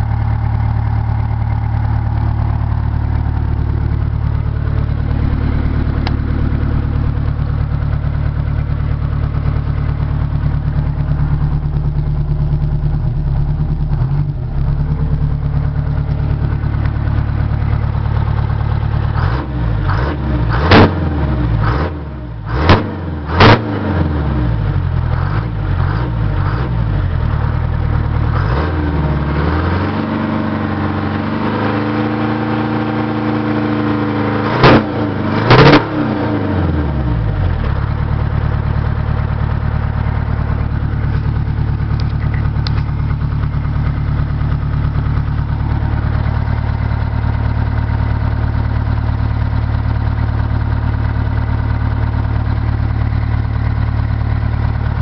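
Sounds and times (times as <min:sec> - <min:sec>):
diesel engine idling and revving: 0:00.0 - 0:55.0.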